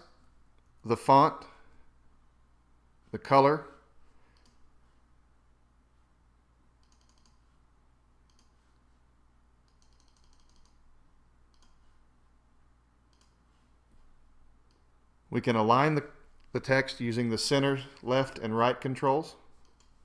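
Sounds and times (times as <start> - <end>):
low steady hum: 0.0 - 20.0
computer mouse and keyboard clicks: 6.8 - 7.6, 8.2 - 8.8, 9.6 - 10.8, 11.5 - 11.9, 13.1 - 13.4, 19.6 - 20.0.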